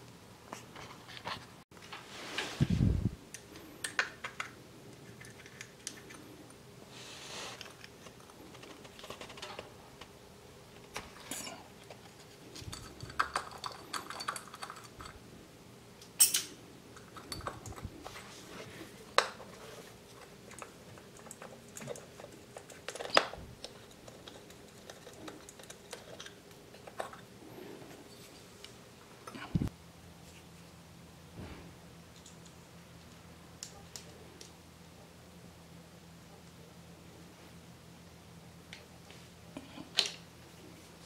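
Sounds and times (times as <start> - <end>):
metal tools clicking and clinking: 11.2 - 15.2, 16.0 - 17.9.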